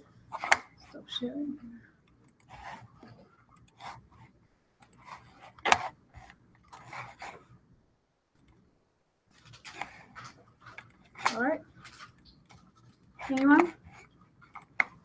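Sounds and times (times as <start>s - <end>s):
rustling and tapping at desk: 9.3s - 15.0s.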